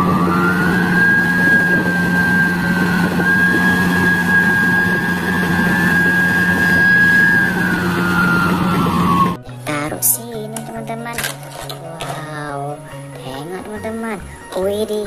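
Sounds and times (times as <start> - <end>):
excavator diesel engine running: 0.0 - 14.5
high whine: 0.0 - 14.5.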